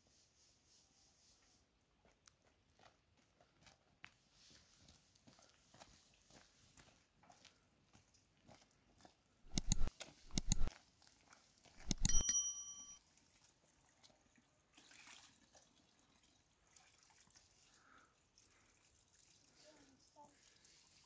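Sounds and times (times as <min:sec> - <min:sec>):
sharp mouse clicks: 0:09.5 - 0:10.7, 0:11.8 - 0:12.3
short bell ding: 0:11.9 - 0:13.0.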